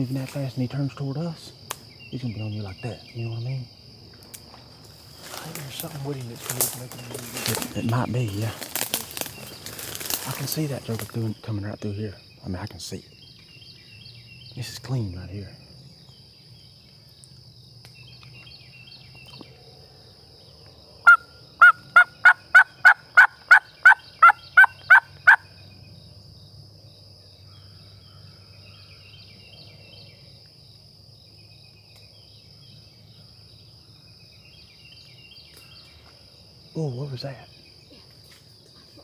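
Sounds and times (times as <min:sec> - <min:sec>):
faint insect drone: 0:00.0 - 0:39.0
turkey call yelps: 0:21.0 - 0:25.5.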